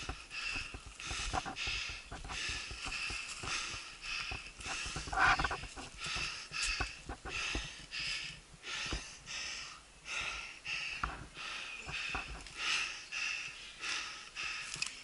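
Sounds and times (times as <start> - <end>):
person breathing hard: 0.0 - 15.0.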